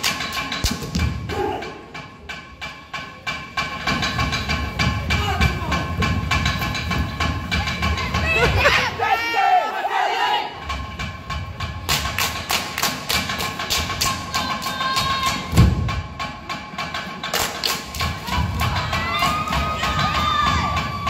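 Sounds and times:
fast percussion knocks: 3.0s - 8.6s
heavy drum thump: 15.5s - 16.2s.

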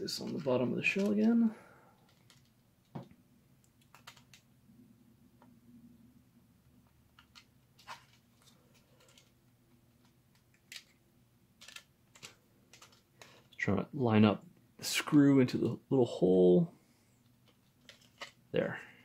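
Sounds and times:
plastic parts clicking: 2.0s - 3.1s, 7.1s - 11.0s, 11.6s - 13.6s, 17.4s - 18.4s.

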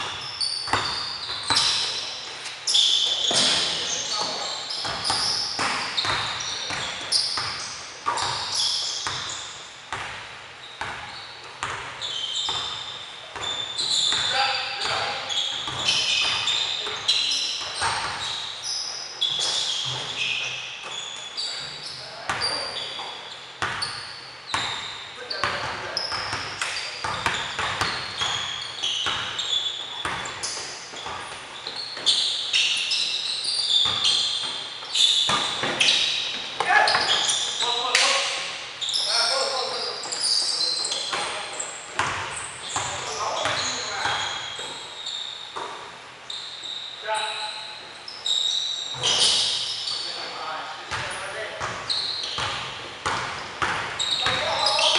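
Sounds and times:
basketball bouncing: 0.0s - 2.0s, 3.1s - 18.4s, 23.6s - 32.3s, 33.7s - 38.0s, 41.0s - 44.4s, 50.9s - 54.9s
shoes squeaking on wooden floor: 0.0s - 9.6s, 10.6s - 54.9s
basketball bouncing on hardwood: 4.2s - 8.4s, 50.9s - 54.4s.

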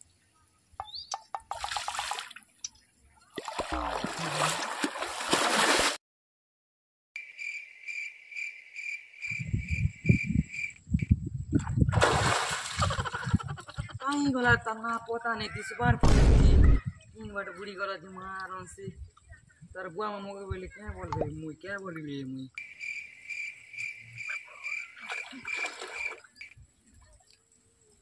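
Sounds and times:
water splashing: 1.4s - 6.0s, 11.6s - 13.2s, 24.6s - 27.5s.

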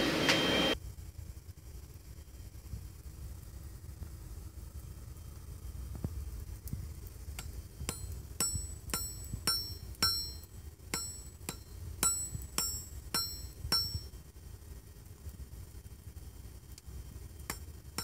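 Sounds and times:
hammer striking metal on anvil: 7.4s - 14.1s, 17.5s - 18.0s.

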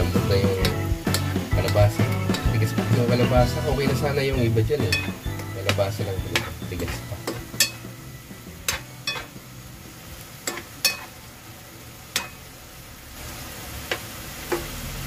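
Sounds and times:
utensil knocking and scraping a pan: 0.0s - 8.0s, 8.6s - 9.4s
faint sizzle: 0.0s - 15.0s.

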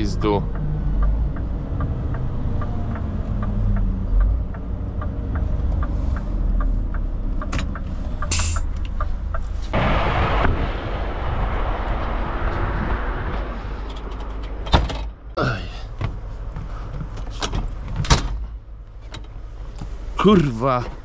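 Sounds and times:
light regular ticking: 0.0s - 9.5s
loud rush of noise: 9.7s - 14.7s.

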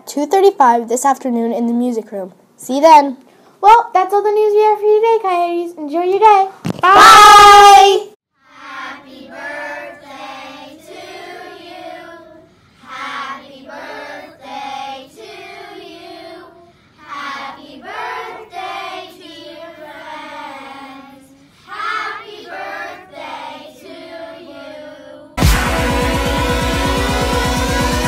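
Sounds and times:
children singing in unison: 8.4s - 28.0s.

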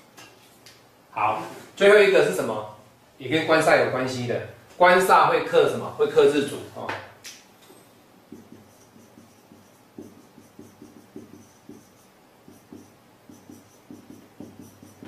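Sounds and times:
marker pen writing on whiteboard: 8.3s - 15.0s.

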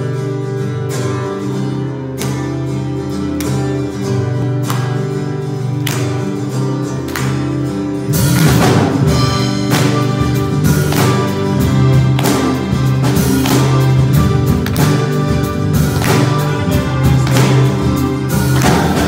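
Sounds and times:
acoustic guitar strumming chords: 0.0s - 19.0s
band playing with drums: 7.8s - 19.0s.

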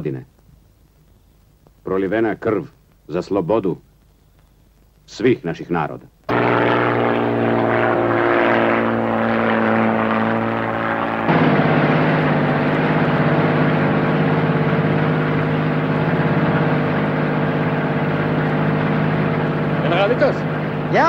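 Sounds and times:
propeller aircraft engine drone: 6.3s - 21.0s.

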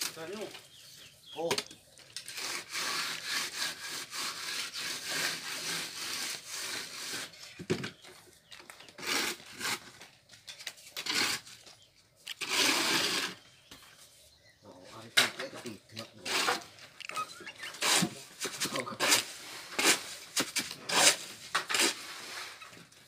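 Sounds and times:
trowel scraping cement on wall: 2.2s - 7.6s, 8.9s - 10.1s, 10.8s - 13.5s, 16.1s - 23.0s.

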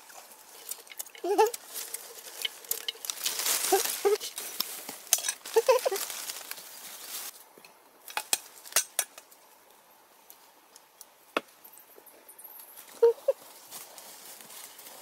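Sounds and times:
rustling leaves and brush: 0.0s - 15.0s
dry wood cracking: 0.5s - 6.7s.

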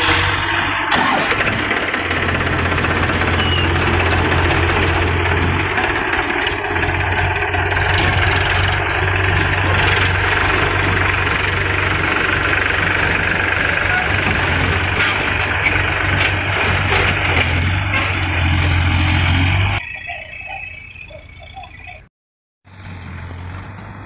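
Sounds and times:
tractor engines idling: 0.0s - 22.1s, 22.7s - 24.0s.

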